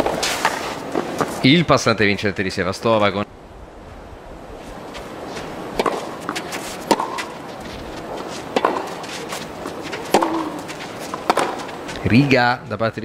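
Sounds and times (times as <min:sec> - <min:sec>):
tennis ball bouncing on court: 0:05.4 - 0:12.1.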